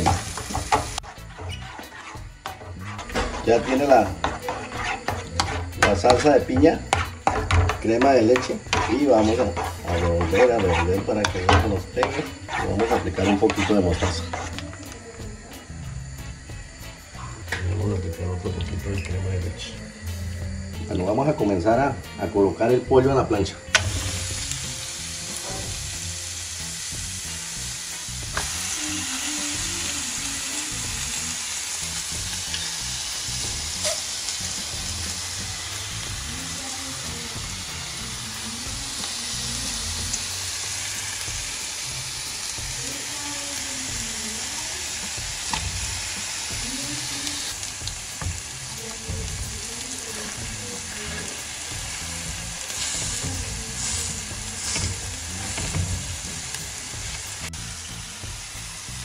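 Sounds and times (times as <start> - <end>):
chicken sizzling on a griddle: 0.0 - 20.1, 20.7 - 59.0.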